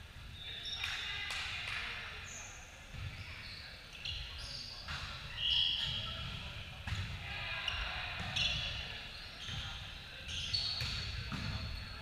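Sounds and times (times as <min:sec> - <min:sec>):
shoe squeaks: 0:03.1 - 0:06.3, 0:07.6 - 0:12.0.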